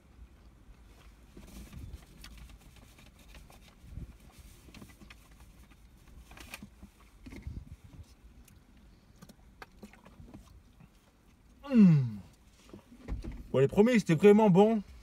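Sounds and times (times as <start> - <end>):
chewing: 8.0 - 11.6.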